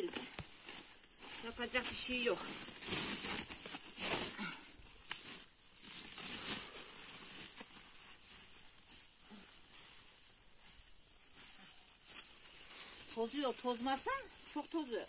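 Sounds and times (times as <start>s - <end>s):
plastic sack and straw rustling: 0.0s - 15.0s.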